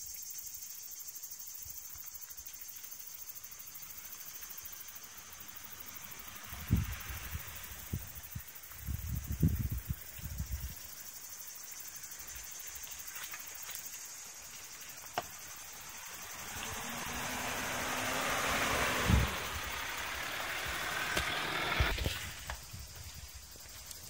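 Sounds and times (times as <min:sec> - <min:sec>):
vehicle engine low note: 0:15.5 - 0:22.0.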